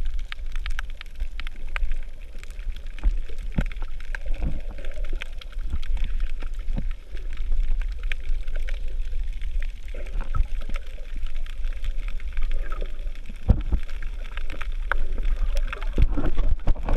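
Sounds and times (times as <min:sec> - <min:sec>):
clicks and gurgles: 0:00.0 - 0:16.9
underwater water wash: 0:00.0 - 0:16.9.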